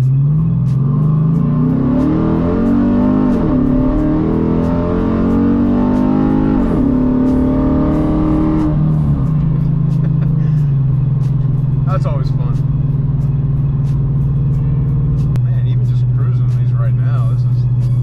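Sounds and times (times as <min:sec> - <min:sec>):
background music with steady beat: 0:00.0 - 0:18.0
car engine accelerating hard: 0:00.0 - 0:18.0.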